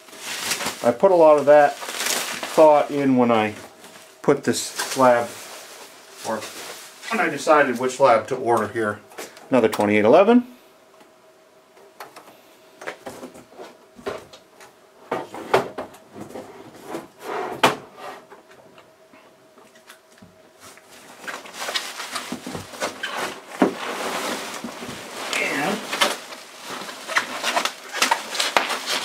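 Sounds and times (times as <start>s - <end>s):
bubble wrap and cardboard crackling: 0.0s - 8.8s, 20.5s - 29.0s.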